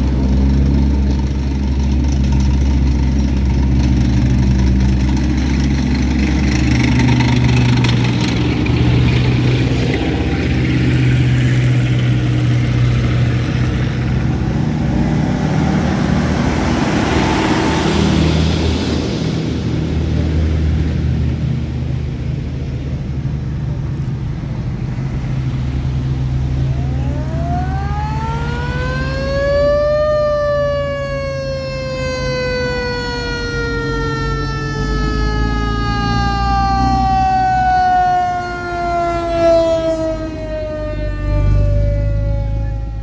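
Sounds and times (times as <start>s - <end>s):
vehicle engines running: 0.0s - 43.0s
siren winding up and down: 26.6s - 43.0s.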